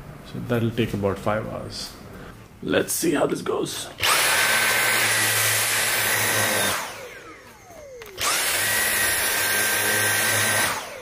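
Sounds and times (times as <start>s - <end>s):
vacuum cleaner motor whine: 4.0s - 11.0s.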